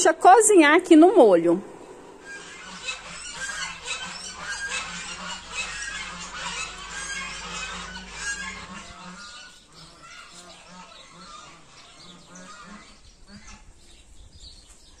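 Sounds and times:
low steady hum: 0.0s - 10.0s
birds calling: 1.0s - 15.0s.

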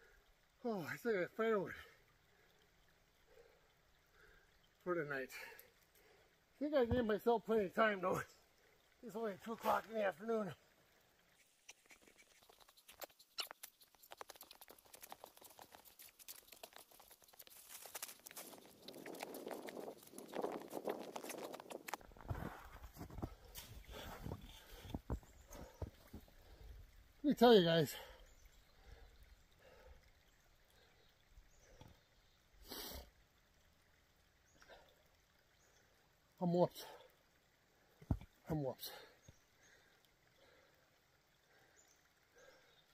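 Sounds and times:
footsteps crunching in snow: 15.0s - 24.5s.

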